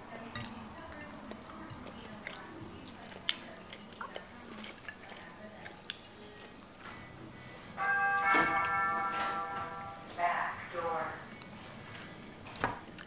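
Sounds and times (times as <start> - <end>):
chewing: 0.2 - 8.8, 11.3 - 13.0
fingers squishing food: 0.3 - 6.8.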